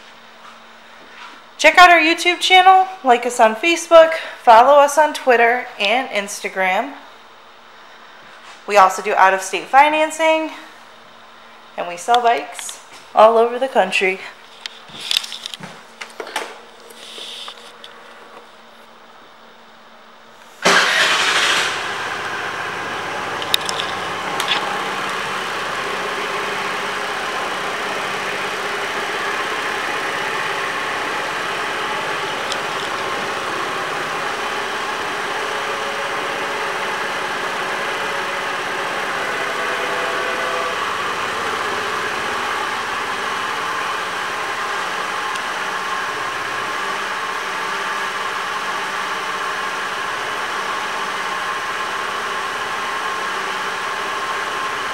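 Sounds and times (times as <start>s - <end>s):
scooter engine starting and idling: 20.6s - 54.9s.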